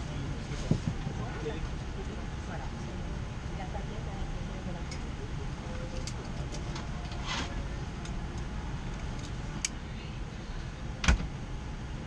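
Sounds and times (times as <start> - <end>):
aircraft cabin rumble: 0.0 - 12.0.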